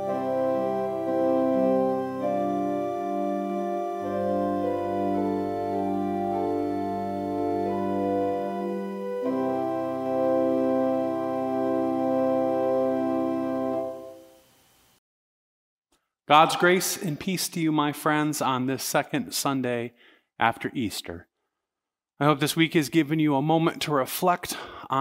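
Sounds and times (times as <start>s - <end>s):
organ playing sustained chords: 0.0s - 14.6s.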